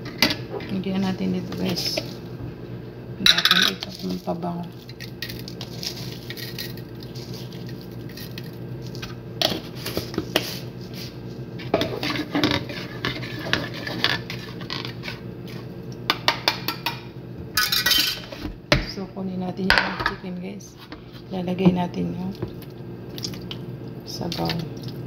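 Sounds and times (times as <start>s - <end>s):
spoon scraping plastic bowl: 9.5s - 15.2s.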